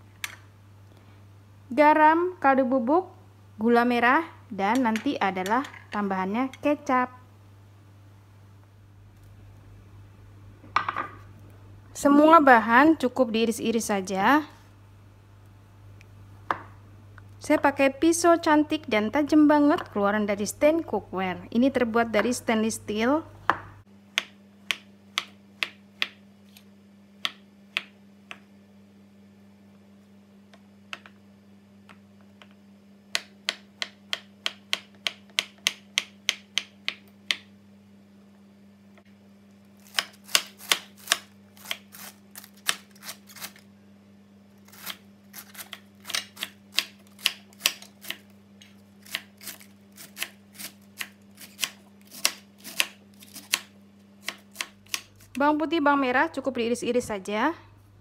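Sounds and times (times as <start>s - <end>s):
knife chopping on cutting board: 39.8s - 42.9s, 44.8s - 48.2s, 49.0s - 55.1s.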